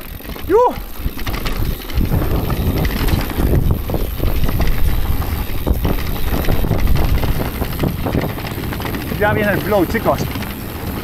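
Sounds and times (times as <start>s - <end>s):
bike knocks and rattles: 0.0s - 11.0s
bike tyres rumbling over stones: 0.0s - 11.0s.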